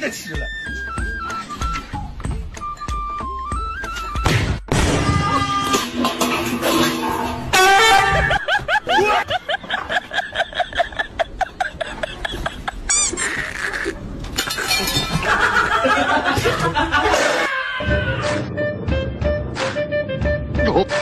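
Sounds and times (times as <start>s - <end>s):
laughter sound effect: 7.8s - 13.9s, 14.9s - 17.9s
clinking crash: 14.3s - 15.4s.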